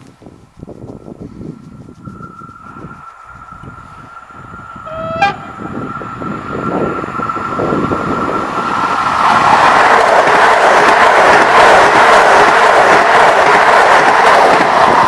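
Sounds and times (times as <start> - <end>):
train high whine: 0.6 - 15.0
train rushing past: 0.8 - 15.0
train horn toot: 4.8 - 5.7.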